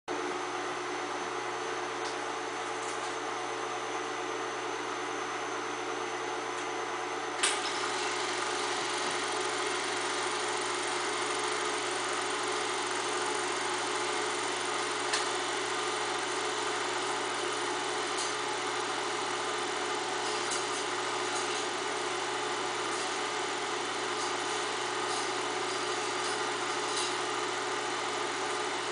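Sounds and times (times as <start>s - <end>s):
film projector whirring: 7.3s - 28.9s
projector clicks: 13.7s - 22.1s, 22.7s - 28.5s.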